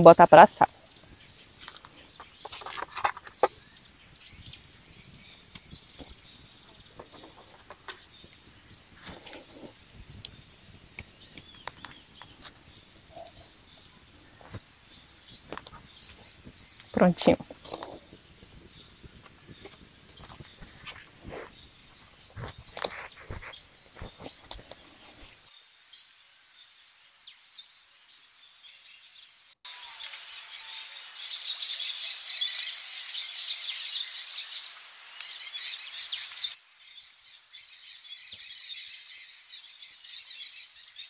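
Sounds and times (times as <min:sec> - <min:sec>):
bird chirps: 0:00.0 - 0:25.4
insects droning: 0:00.0 - 0:41.0
crackles and clicks: 0:04.5 - 0:25.4.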